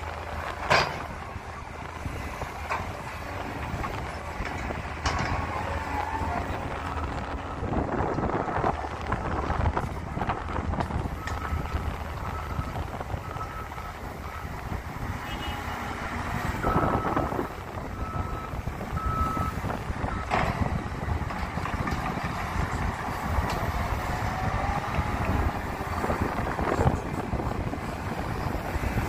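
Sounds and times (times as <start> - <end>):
diesel engine and hydraulics: 0.0 - 29.0
reversing alarm beeping: 11.2 - 14.7, 16.5 - 20.4.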